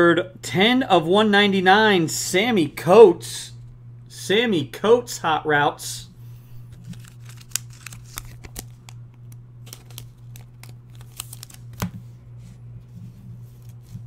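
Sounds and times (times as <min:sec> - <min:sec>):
steady low hum: 0:00.0 - 0:14.0
cards clicking and tapping on desk: 0:09.7 - 0:12.1.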